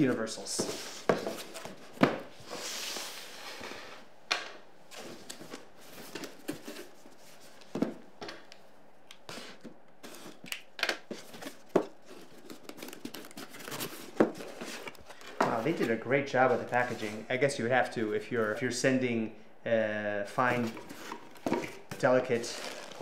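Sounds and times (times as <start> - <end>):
cardboard scraping and rustling: 11.1 - 17.2.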